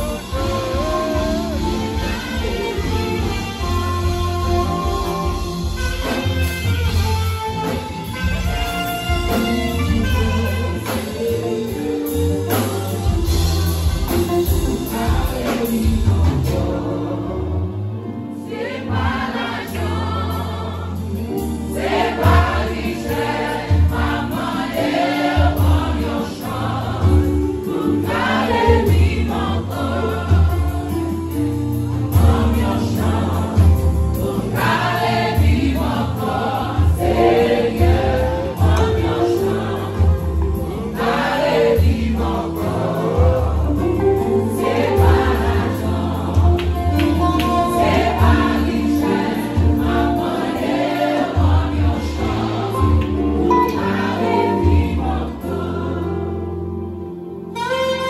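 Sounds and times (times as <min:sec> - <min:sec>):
vocal group singing in harmony: 0:00.0 - 0:06.2, 0:07.6 - 0:58.0
keyboard-led band with heavy bass: 0:00.0 - 0:58.0.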